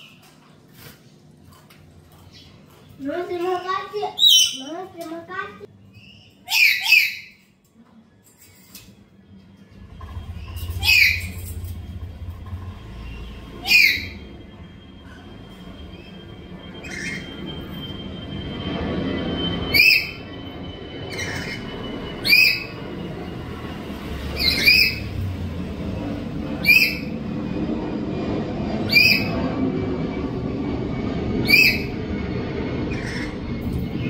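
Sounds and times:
parrot shrill squawks: 0:04.1 - 0:04.7, 0:06.0 - 0:07.4, 0:10.6 - 0:11.6, 0:13.6 - 0:14.3, 0:16.8 - 0:17.4, 0:19.7 - 0:20.2, 0:21.1 - 0:22.8, 0:24.4 - 0:25.1, 0:26.6 - 0:27.1, 0:31.4 - 0:32.0
low rumble: 0:08.8 - 0:34.0.

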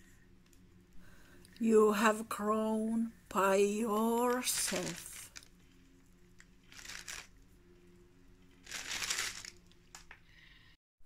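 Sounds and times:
paper bag crinkling: 0:03.9 - 0:05.5, 0:06.7 - 0:07.3, 0:08.5 - 0:10.1.

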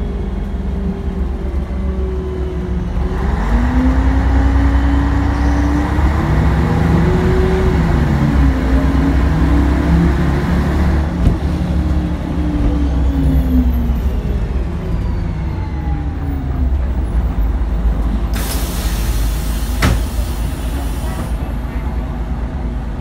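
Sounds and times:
bus engine rumbling: 0:00.0 - 0:23.0
air brakes hissing: 0:18.3 - 0:21.8.

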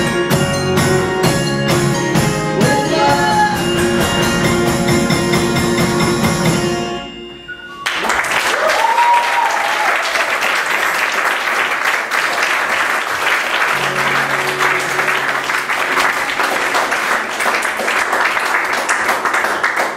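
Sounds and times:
audience applauding: 0:07.8 - 0:19.9.

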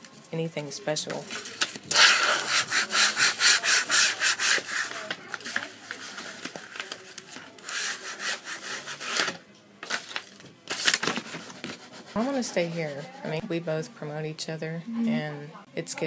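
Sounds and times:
rubbing on wooden board: 0:02.0 - 0:05.1.

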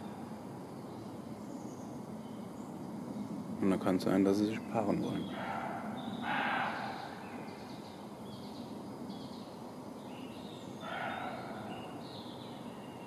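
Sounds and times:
small birds chirping: 0:00.0 - 0:13.0
harsh animal call: 0:05.2 - 0:07.6, 0:10.8 - 0:12.0.

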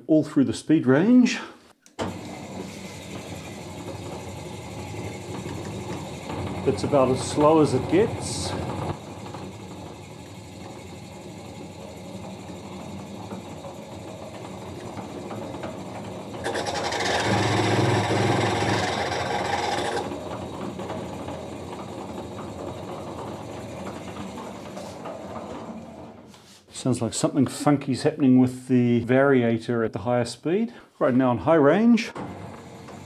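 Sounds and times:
band saw drive running: 0:02.0 - 0:26.3, 0:32.2 - 0:33.0
loud harsh pulley noise: 0:02.0 - 0:26.3, 0:32.2 - 0:33.0.

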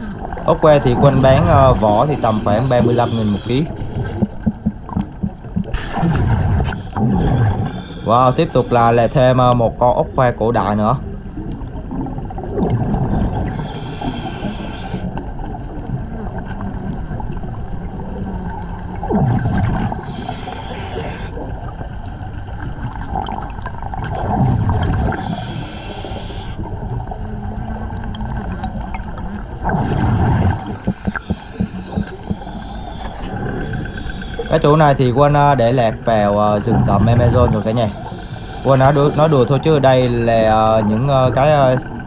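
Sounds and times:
exhaled bubbles gushing: 0:00.0 - 0:09.7, 0:10.8 - 0:13.8, 0:15.5 - 0:25.6, 0:26.6 - 0:42.0
steady underwater hiss: 0:00.0 - 0:42.0
regulator inhale hiss: 0:01.8 - 0:03.8, 0:13.2 - 0:15.2, 0:19.9 - 0:21.5, 0:25.1 - 0:26.7, 0:30.6 - 0:34.7, 0:37.6 - 0:39.5.

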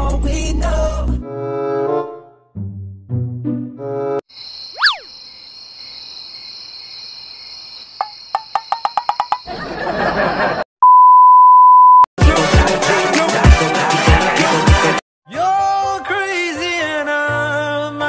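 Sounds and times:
music with heavy bass beats: 0:12.2 - 0:15.0.

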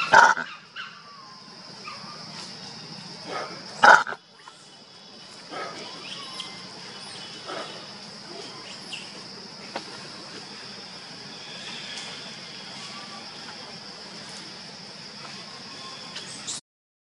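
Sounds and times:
monkey calls: 0:00.0 - 0:02.3, 0:03.3 - 0:09.2
insects droning: 0:00.0 - 0:16.6.

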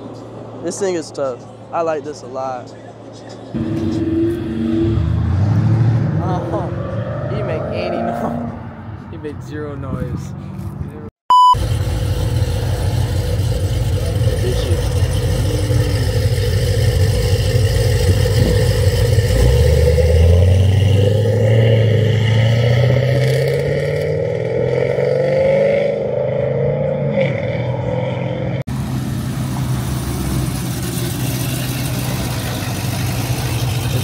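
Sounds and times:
car engine revving: 0:03.6 - 0:09.0, 0:11.5 - 0:34.0
low engine rumble: 0:06.0 - 0:23.6, 0:27.7 - 0:34.0.

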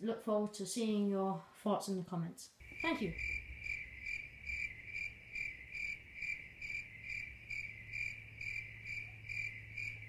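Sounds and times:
cricket chirping: 0:02.6 - 0:10.0.

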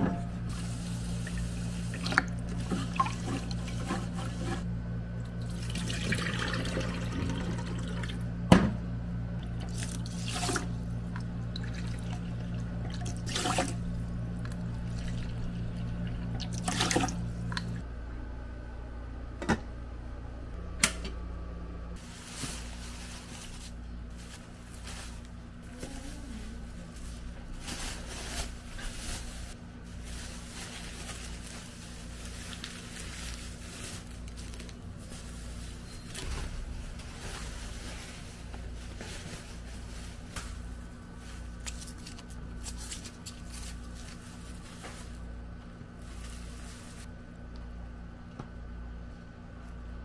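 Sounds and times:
plastic bags rustling and crinkling: 0:00.5 - 0:04.7, 0:22.0 - 0:47.1.

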